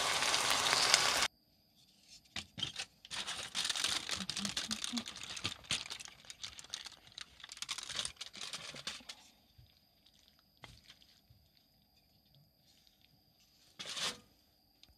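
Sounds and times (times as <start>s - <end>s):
aluminium foil crinkling: 2.6s - 11.8s.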